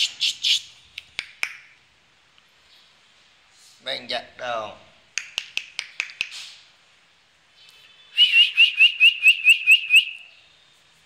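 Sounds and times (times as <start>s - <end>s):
sharp mouth clicks: 5.1s - 6.6s
rising whistle chirps: 8.1s - 10.3s.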